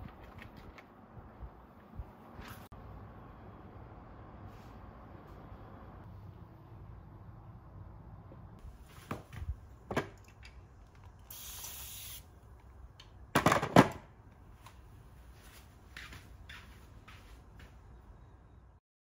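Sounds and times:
spray bottle hiss: 11.2s - 12.3s.

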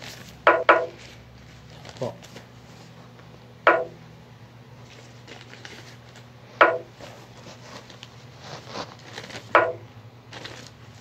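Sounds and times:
low steady hum: 0.0s - 11.0s
chess piece clack effect: 3.7s - 4.0s.

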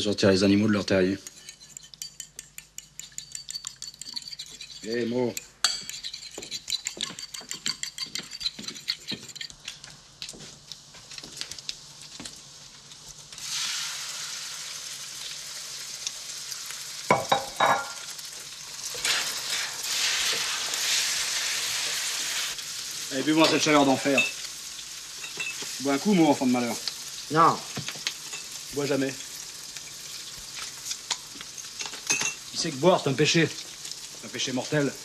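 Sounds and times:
eggs sizzling in a pan: 0.0s - 35.0s
fork beating eggs in a bowl: 1.1s - 9.8s.

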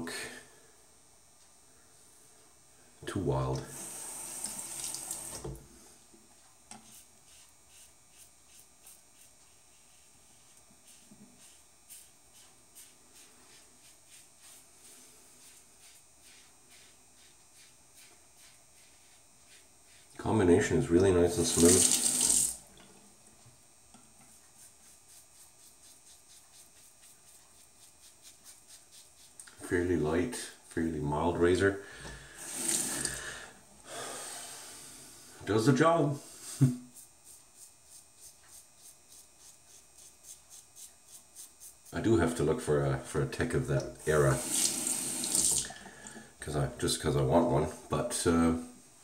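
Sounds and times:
razor scraping stubble: 6.7s - 20.4s, 24.2s - 29.6s, 36.9s - 42.2s
safety razor scratching stubble: 37.0s - 42.1s.

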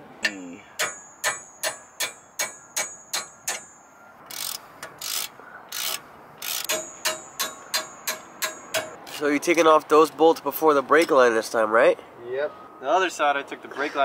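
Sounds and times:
hammer striking metal wrench: 0.2s - 9.0s.

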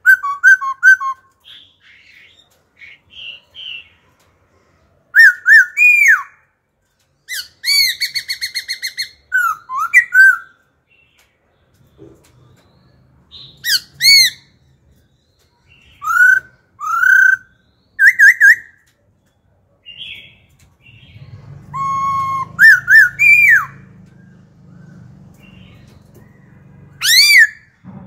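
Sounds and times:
bird whistling song: 0.0s - 3.9s, 5.1s - 6.5s, 7.2s - 11.3s, 11.9s - 27.8s
faint low hum: 20.5s - 28.0s.

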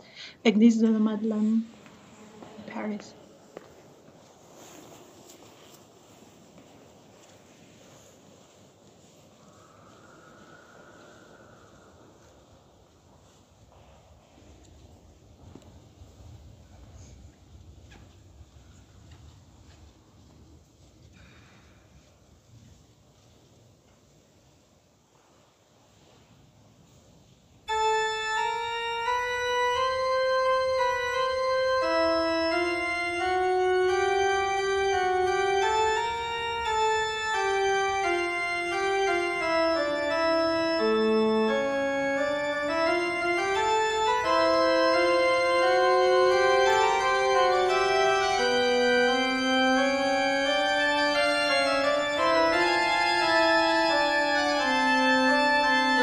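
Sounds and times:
organ music: 27.7s - 56.0s.

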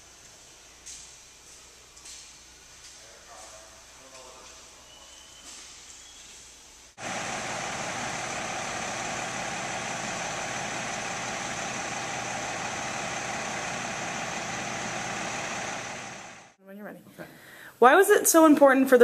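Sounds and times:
steady engine noise: 7.0s - 16.6s.

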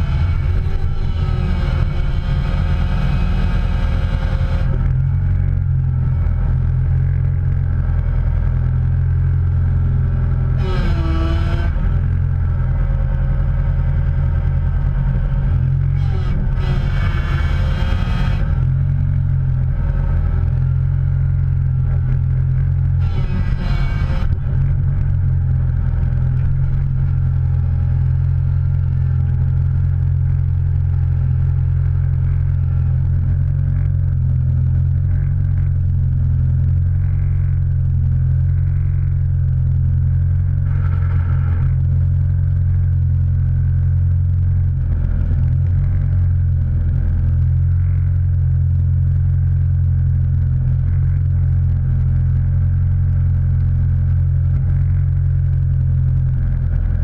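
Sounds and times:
vehicle engine droning: 0.0s - 57.0s.

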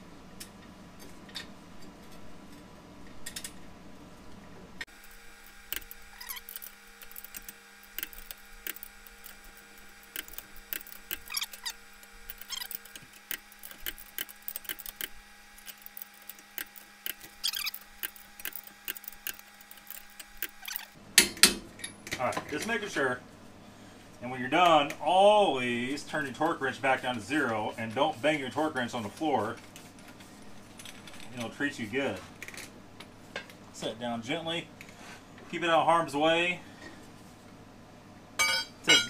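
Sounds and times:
torque wrench clicks and knocks: 5.0s - 22.0s.

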